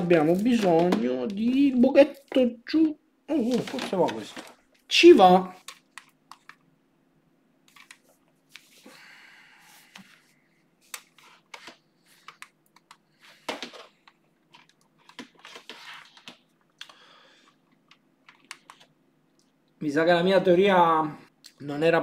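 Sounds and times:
cables rustling in plastic box: 3.4 - 4.8.

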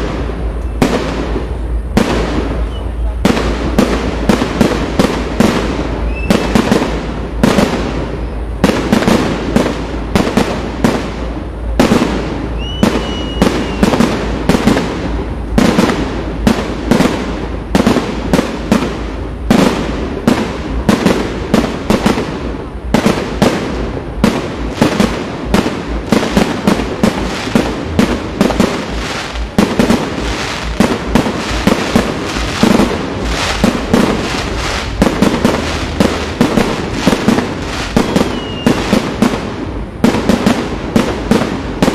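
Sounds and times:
firework whistle: 2.6 - 3.2, 6.0 - 6.8, 12.5 - 14.3, 31.6 - 39.1
fireworks shells bursting: 24.3 - 39.4.

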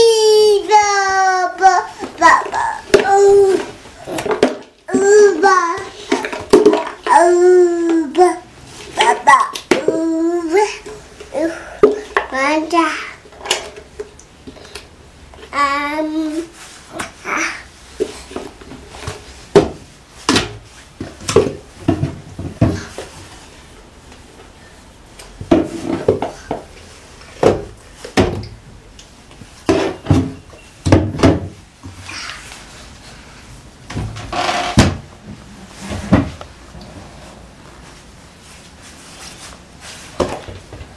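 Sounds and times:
plastic jars and lids knocking: 2.0 - 8.0
wooden cabinet doors opening and shutting: 29.7 - 31.6, 33.9 - 37.3.

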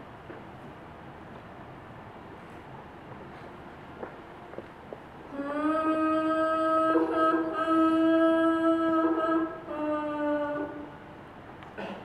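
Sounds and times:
person chanting wordlessly: 5.3 - 11.1.

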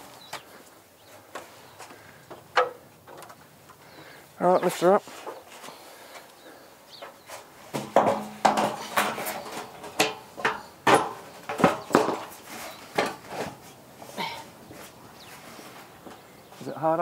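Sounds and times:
metal sheet clanking and rattling: 7.7 - 13.6.

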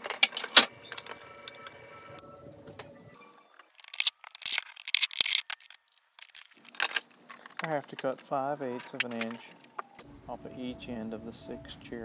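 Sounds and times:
plastic chair parts rattling: 0.0 - 1.2, 3.8 - 9.6.

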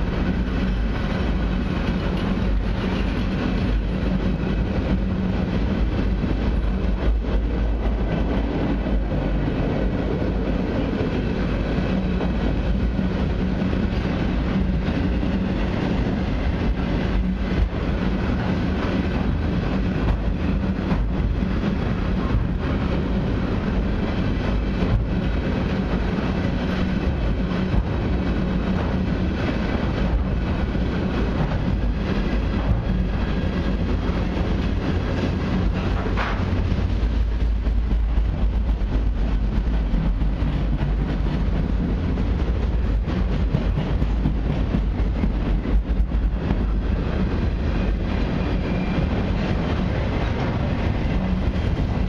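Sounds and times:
wheels clicking over rail joints: 0.0 - 48.0
train wheels rumbling on rails: 0.0 - 52.0.

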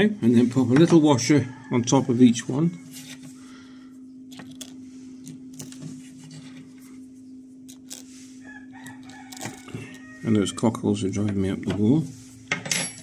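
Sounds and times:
steady low hum: 0.0 - 13.0
cockerels crowing and clucking: 0.8 - 3.2, 8.4 - 11.5
metal washers clicking: 4.3 - 4.8, 7.7 - 8.0, 8.8 - 10.0.

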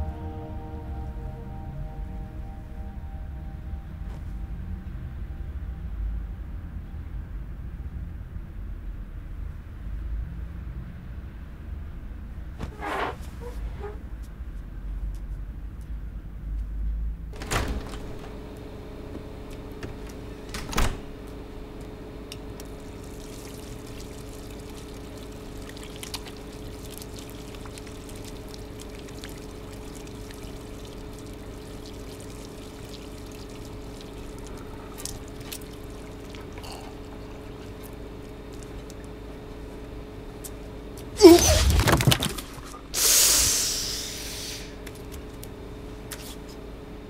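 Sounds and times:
low hum: 0.0 - 12.7
tap running into basin: 22.6 - 36.6
hands being washed: 22.6 - 39.1.

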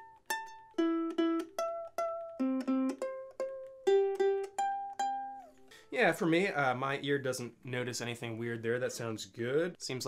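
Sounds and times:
ukulele strings plucked: 0.0 - 5.8.

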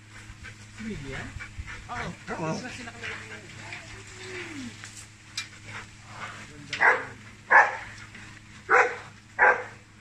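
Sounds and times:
large dog barking: 6.8 - 8.0, 8.7 - 9.8.

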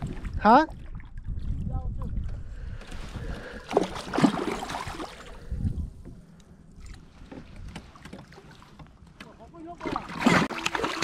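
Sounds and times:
fish thrashing and splashing: 3.0 - 5.5, 9.8 - 11.0.

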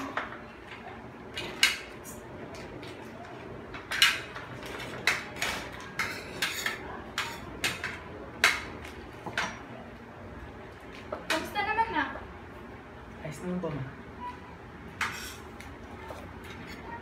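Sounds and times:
spoon clinking against plates: 6.0 - 8.7.

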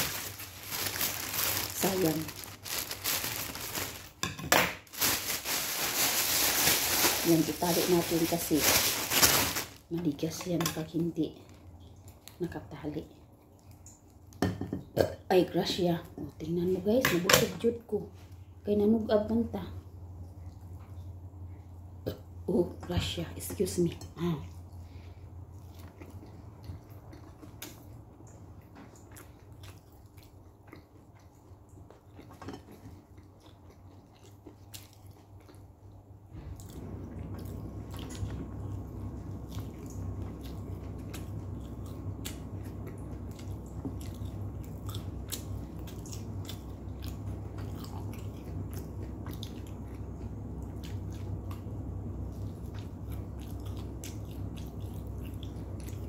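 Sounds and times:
steady low hum: 0.0 - 56.0
person chewing bread: 24.6 - 56.0.

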